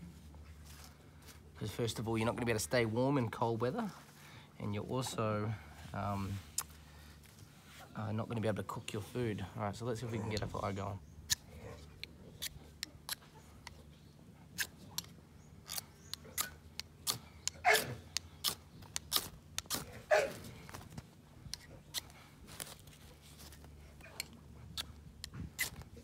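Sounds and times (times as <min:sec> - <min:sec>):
knife scraping a ferro rod: 0:10.3 - 0:13.9, 0:14.5 - 0:20.0, 0:21.5 - 0:26.0.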